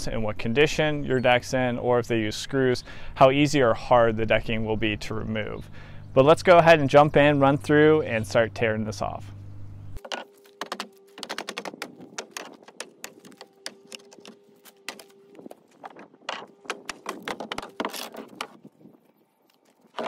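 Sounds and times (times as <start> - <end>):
faint steady hum: 3.9 - 11.0
footsteps on wooden deck: 10.0 - 18.6
sledgehammer knocks and scrapes: 10.0 - 18.6.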